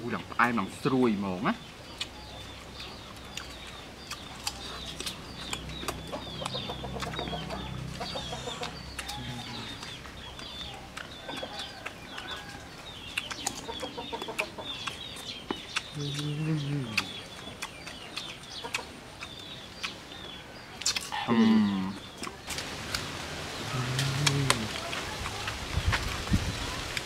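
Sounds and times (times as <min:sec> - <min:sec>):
small birds chirping: 0:00.0 - 0:27.0
chickens clucking: 0:01.6 - 0:23.2.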